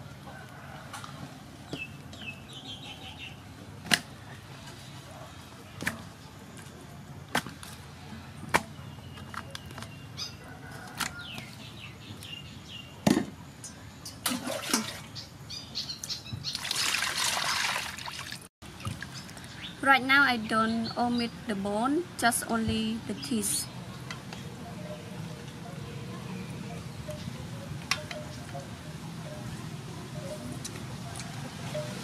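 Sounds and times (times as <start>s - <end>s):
water pouring with splash: 16.5s - 18.5s.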